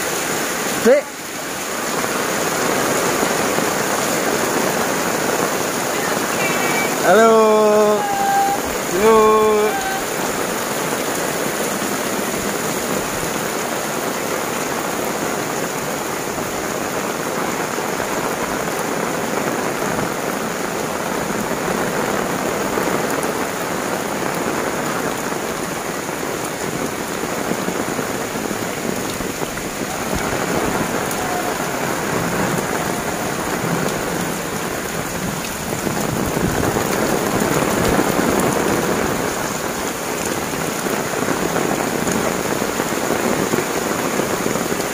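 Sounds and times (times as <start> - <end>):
heavy rain pouring: 0.0 - 44.9.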